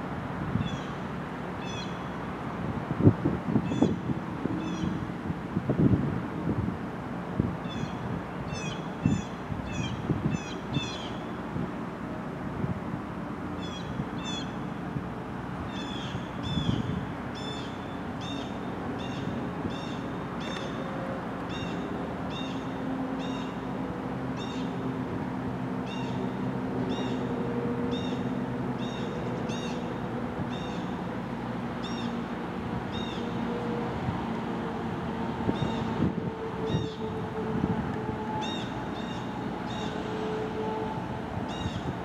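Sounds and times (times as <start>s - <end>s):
freight train rumbling: 18.9s - 42.0s.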